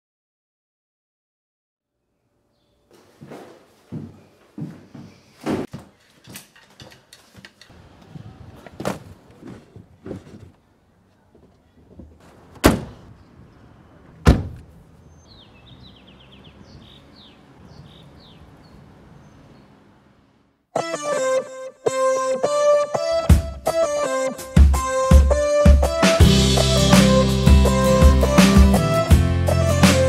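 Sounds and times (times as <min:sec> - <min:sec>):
cardboard boxes knocking and scraping: 0:08.6 - 0:10.6
car door shutting: 0:12.2 - 0:13.1, 0:14.2 - 0:14.7
hatchback lid slamming: 0:12.6 - 0:13.0, 0:14.2 - 0:14.7.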